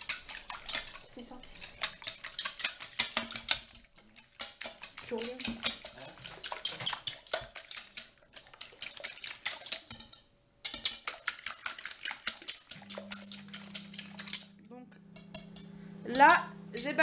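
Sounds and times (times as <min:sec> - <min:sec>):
fork beating eggs in bowl: 0:00.0 - 0:17.0
low steady hum: 0:12.8 - 0:17.0.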